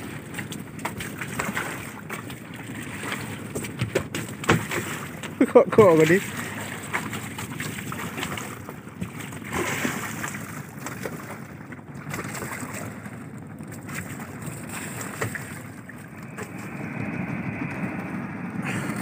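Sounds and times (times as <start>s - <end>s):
sea noise: 0.0s - 19.0s
wind on microphone: 0.0s - 19.0s.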